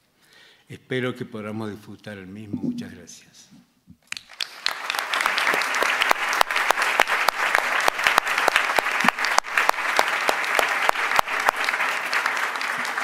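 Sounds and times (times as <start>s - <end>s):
audience applauding: 4.1s - 13.0s.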